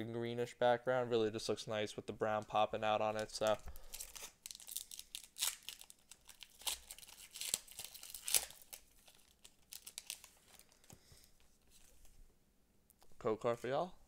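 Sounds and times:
foil wrapper crinkling: 0:03.2 - 0:10.9.

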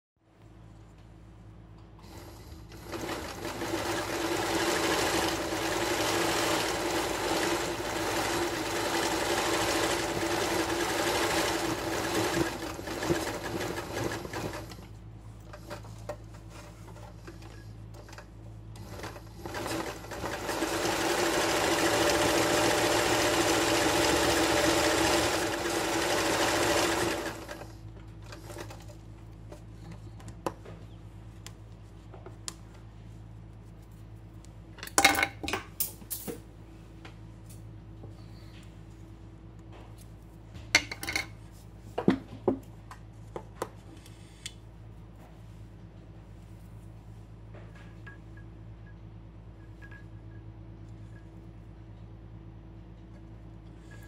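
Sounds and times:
sewing machine stitching: 0:02.1 - 0:14.8, 0:18.8 - 0:27.7.

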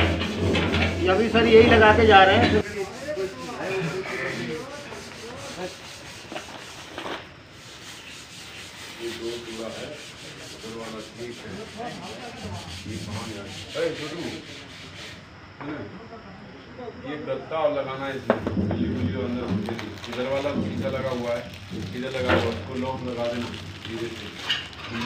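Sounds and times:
plastic and cardboard rustling: 0:19.0 - 0:25.0.

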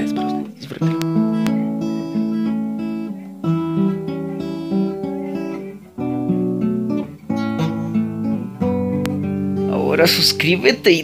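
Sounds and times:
acoustic guitar fingerpicking: 0:00.0 - 0:11.0.

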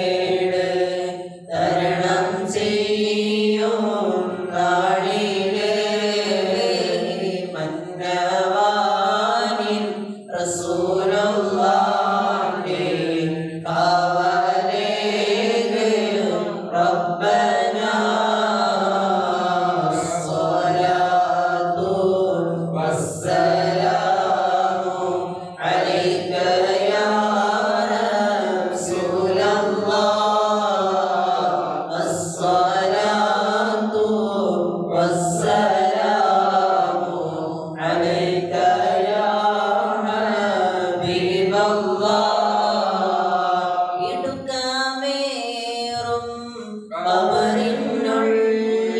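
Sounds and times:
men chanting: 0:00.0 - 0:44.5, 0:45.9 - 0:48.9
man singing into a microphone: 0:43.6 - 0:48.9.

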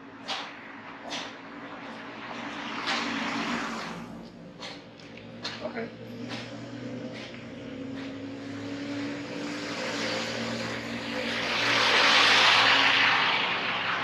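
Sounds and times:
truck driving past: 0:00.0 - 0:14.0.

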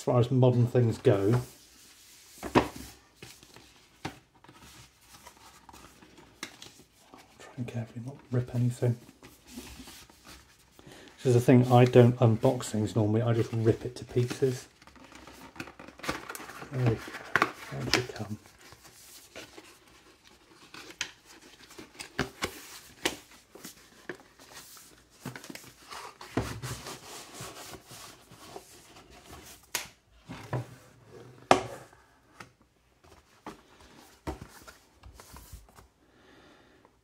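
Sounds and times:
cardboard rubbing and rustling: 0:13.3 - 0:31.1.

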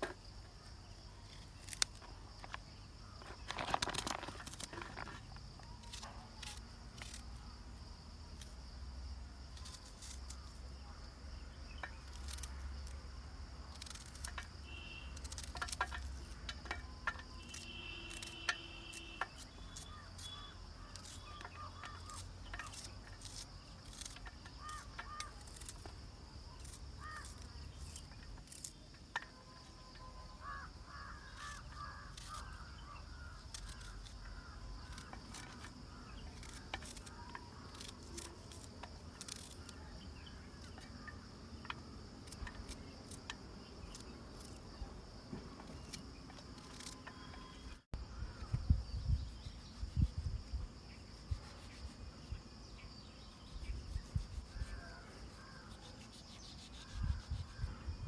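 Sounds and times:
insect drone: 0:00.0 - 0:58.0
birds calling: 0:17.1 - 0:22.9, 0:24.0 - 0:25.7, 0:29.4 - 0:38.0.

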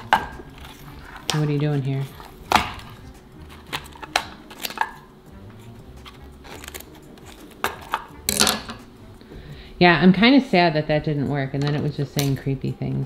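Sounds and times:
scissors snipping: 0:06.1 - 0:08.0.

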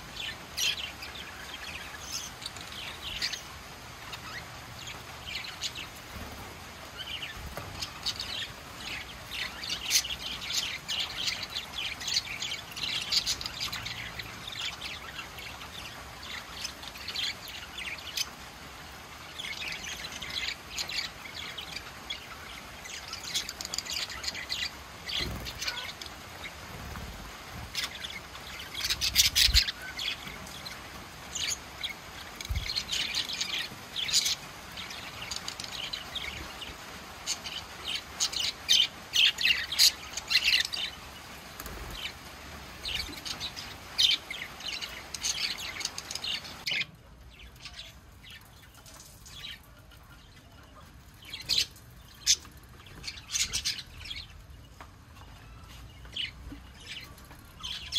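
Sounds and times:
background hiss: 0:00.0 - 0:50.3
budgerigars chirping: 0:19.4 - 0:42.2.

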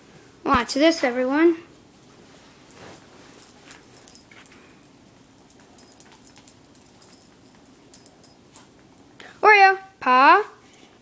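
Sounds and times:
dog moving about: 0:02.7 - 0:08.7.

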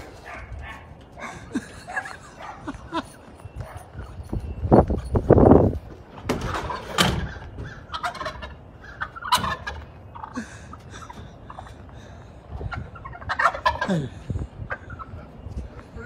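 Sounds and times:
turkey gobbling: 0:06.4 - 0:15.3.

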